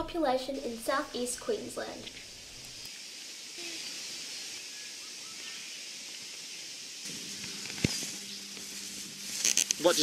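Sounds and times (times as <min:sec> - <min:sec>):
outdoor ambience hiss: 0:00.0 - 0:10.0
faint chirps: 0:02.0 - 0:09.9.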